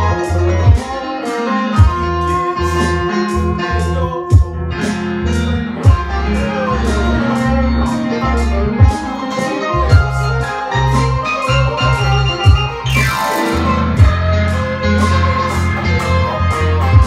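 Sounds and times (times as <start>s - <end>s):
deep bass notes: 0.0s - 1.0s, 1.8s - 17.0s
electric guitar: 0.0s - 17.0s
hi-hats: 0.0s - 17.0s
keyboard: 0.0s - 17.0s.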